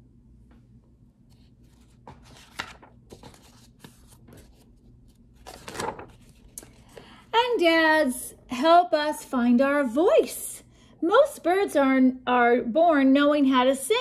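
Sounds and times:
book pages turning: 0:01.2 - 0:07.1.

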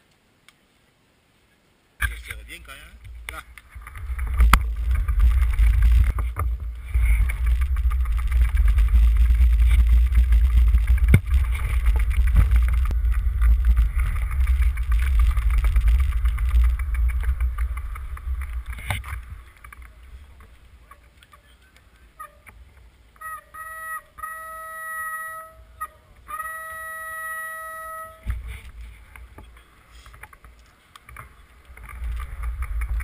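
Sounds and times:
wind buffeting microphone: 0:02.1 - 0:22.9, 0:30.1 - 0:33.0.

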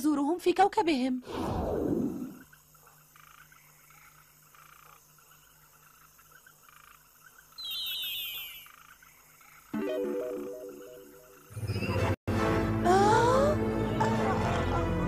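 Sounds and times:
frogs croaking: 0:02.0 - 0:11.6
high falling chirp: 0:07.6 - 0:08.9, 0:09.8 - 0:12.1.

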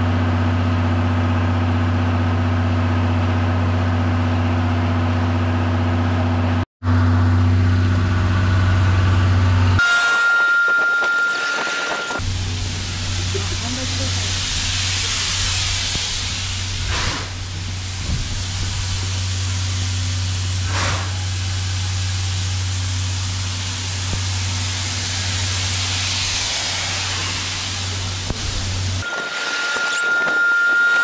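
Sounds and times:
steam locomotive hissing steam: 0:09.8 - 0:31.0
constant low hum: 0:11.8 - 0:30.4.

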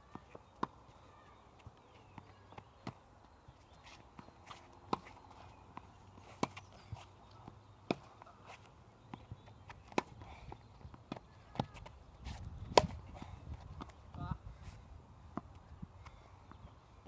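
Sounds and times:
tennis ball hit and bouncing: 0:00.1 - 0:00.8, 0:04.2 - 0:10.3, 0:11.1 - 0:13.2
footsteps and scuffs: 0:01.6 - 0:14.8.

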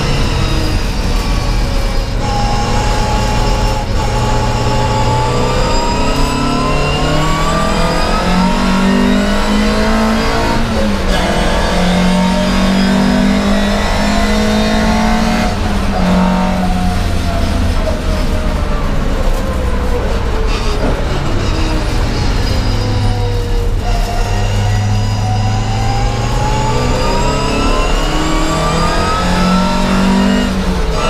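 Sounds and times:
race car engine revving hard: 0:00.0 - 0:19.4, 0:20.1 - 0:31.0.

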